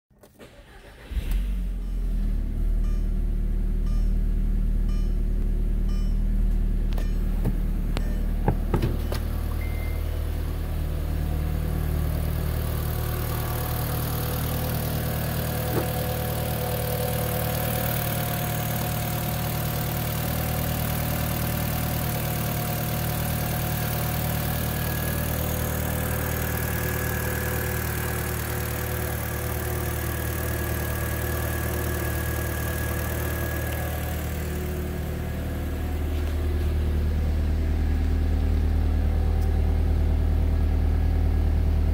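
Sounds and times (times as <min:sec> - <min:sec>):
car engine idling: 0:00.4 - 0:41.9
sharp knocks: 0:07.4 - 0:09.2.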